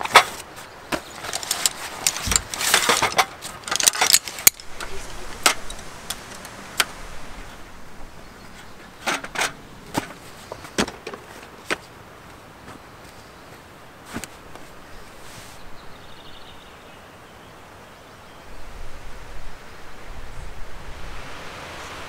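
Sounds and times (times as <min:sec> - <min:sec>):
metal chair frame clicking into place: 0:01.0 - 0:07.0, 0:08.6 - 0:10.2.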